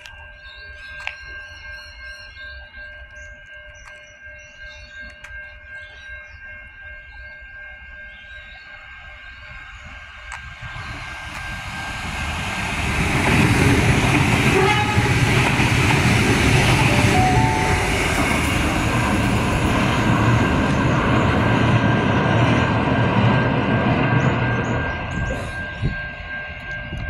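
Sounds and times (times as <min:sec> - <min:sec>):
electric train rolling on rails: 0:00.0 - 0:27.0.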